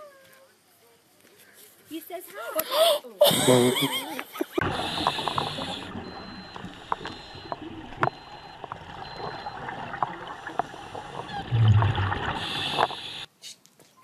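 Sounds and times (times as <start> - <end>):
regulator bubbles gurgling: 4.6 - 13.3
sharp clicks underwater: 4.6 - 13.3
underwater water noise: 4.6 - 13.3
faint high beeps: 4.9 - 11.5.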